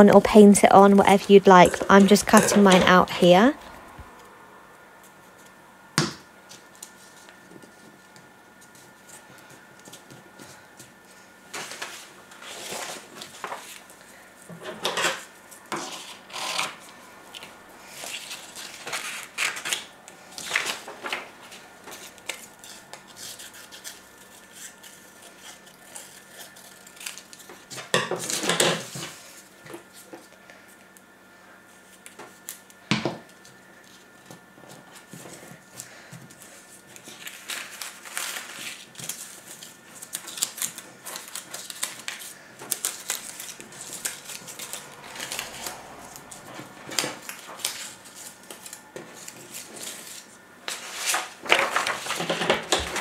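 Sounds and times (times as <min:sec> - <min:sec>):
scissors snipping paper: 0:21.9 - 0:28.4, 0:37.0 - 0:46.3
paper handling: 0:34.8 - 0:53.0.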